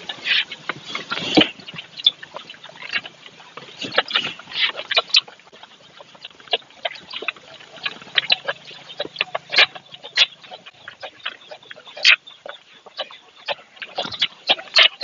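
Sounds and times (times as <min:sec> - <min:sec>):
calf sucking and smacking: 0:00.0 - 0:12.2.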